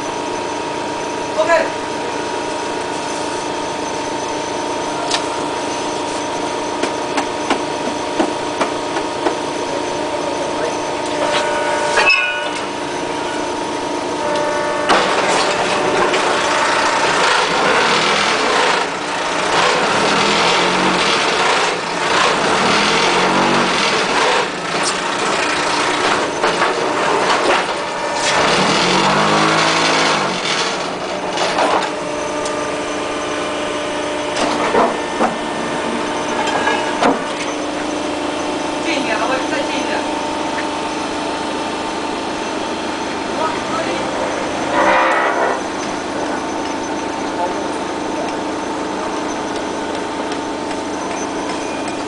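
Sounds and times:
machine hum with clanks: 0.0s - 52.0s
harsh vibrating rattle: 14.9s - 52.0s.

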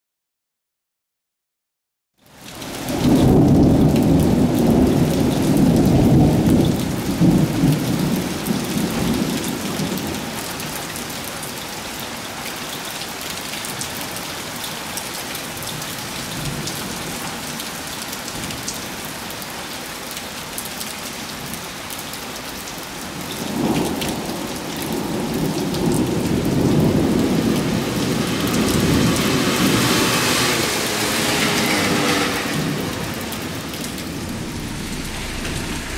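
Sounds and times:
rain falling steadily: 2.2s - 35.9s
rolling thunder: 2.8s - 10.1s, 32.5s - 35.9s.

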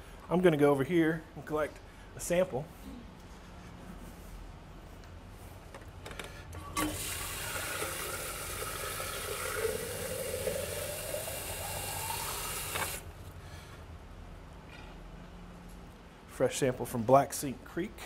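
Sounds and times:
tap water running into a container: 6.8s - 13.0s
faucet turning click: 12.6s - 13.0s.

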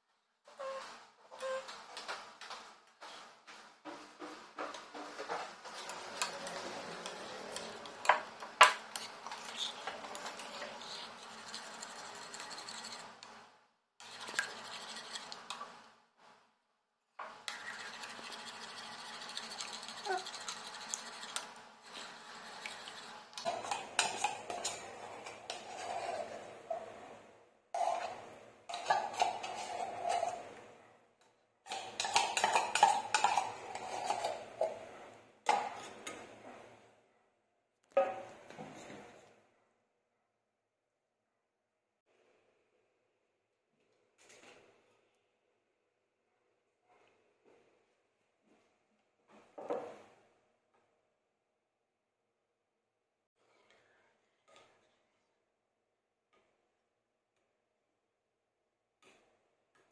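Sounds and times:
spoon scraping tin can: 5.6s - 13.2s, 14.0s - 15.7s, 17.5s - 27.0s, 27.8s - 30.6s, 31.7s - 34.8s
metal spoon stirring in ceramic bowl: 5.7s - 13.3s, 14.0s - 15.8s, 17.4s - 27.0s, 27.8s - 30.6s, 31.7s - 34.9s.

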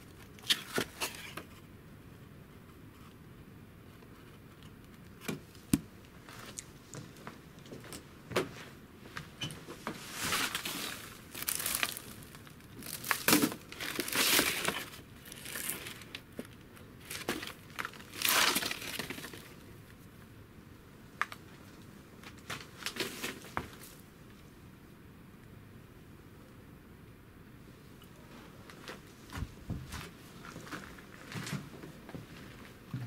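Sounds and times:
paper and plastic crinkling: 9.9s - 19.6s, 22.2s - 24.0s.

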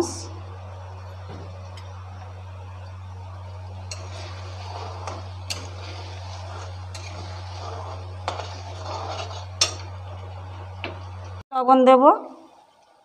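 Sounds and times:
oil sizzling: 0.0s - 11.4s
spatula scraping metal pan: 3.9s - 10.3s.

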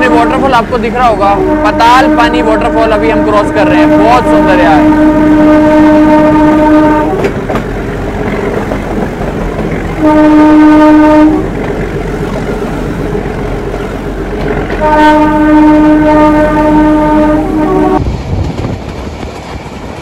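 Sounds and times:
train horn blasts: 0.0s - 0.5s, 1.2s - 7.4s, 10.0s - 11.5s, 14.7s - 18.0s
train running noise: 0.0s - 20.0s.

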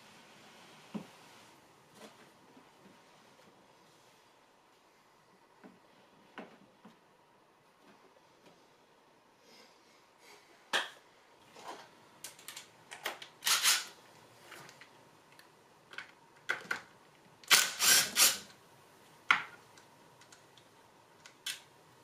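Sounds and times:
cordless power tool bursts: 13.4s - 13.9s, 17.5s - 18.5s.

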